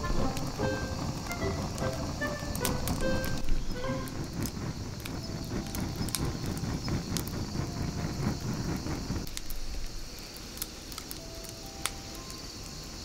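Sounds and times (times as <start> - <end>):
low rumble: 0.0 - 10.0
wood fire crackling: 0.0 - 13.0.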